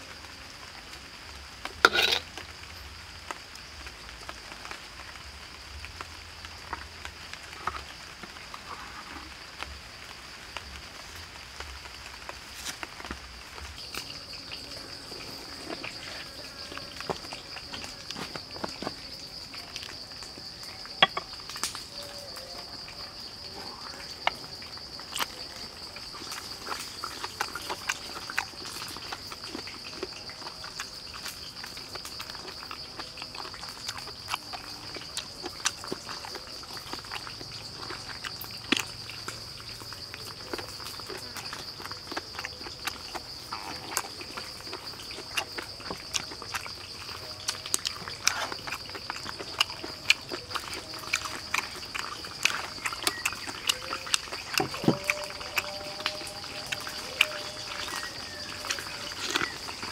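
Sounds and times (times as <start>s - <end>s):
insects droning: 0.0s - 59.9s
mouth chewing: 1.8s - 2.4s, 13.8s - 59.9s.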